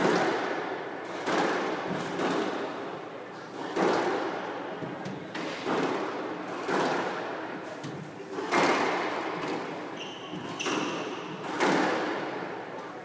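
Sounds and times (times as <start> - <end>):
squash ball hitting racket and walls: 0.0 - 13.0
shoe squeaking on court floor: 9.9 - 11.5.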